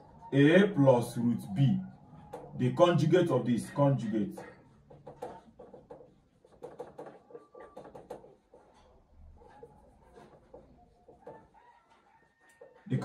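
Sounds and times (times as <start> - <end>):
pen writing taps and scratches: 4.3 - 12.8.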